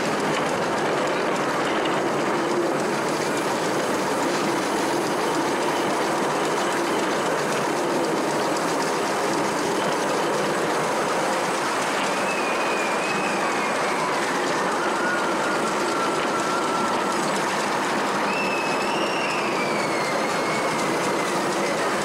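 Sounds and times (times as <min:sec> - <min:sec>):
miniature train wheels rattling on rails: 0:00.0 - 0:22.0
faint high squeal: 0:18.2 - 0:21.8.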